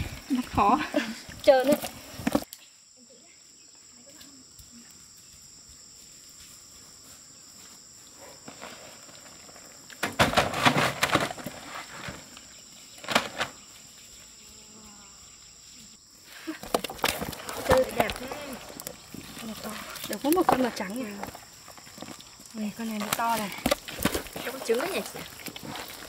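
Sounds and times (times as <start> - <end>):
high-pitched insect drone: 12.4 - 16.5.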